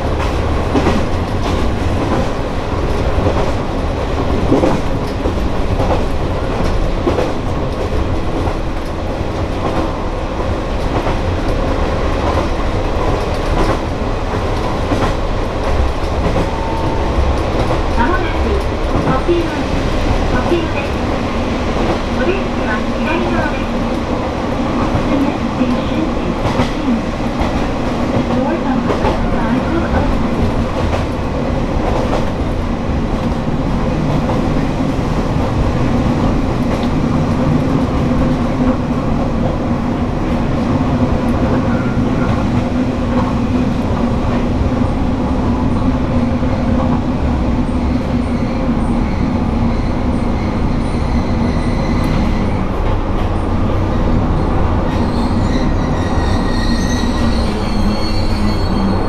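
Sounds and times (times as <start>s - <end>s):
train wheels on rails: 0.0s - 59.0s
wheels and brakes squealing: 48.2s - 52.6s, 55.0s - 59.0s.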